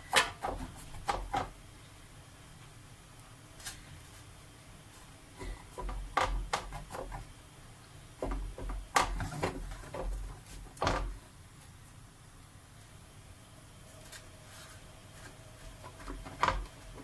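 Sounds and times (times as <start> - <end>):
hand patting pastry in metal tray: 0.0 - 1.6, 5.0 - 7.3.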